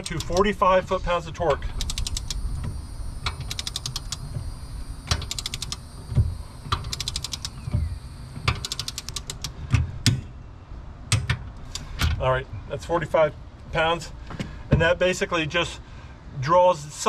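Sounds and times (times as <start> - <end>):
ratchet wrench clicking: 0.0 - 0.6, 1.5 - 4.4, 5.0 - 6.0, 6.6 - 9.6
dull knocks: 6.0 - 6.9, 7.6 - 8.7.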